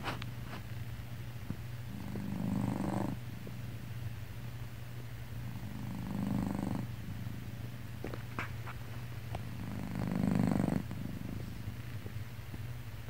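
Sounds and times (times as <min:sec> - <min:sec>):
cat purring: 0:01.8 - 0:03.3, 0:05.4 - 0:07.6, 0:09.4 - 0:12.2.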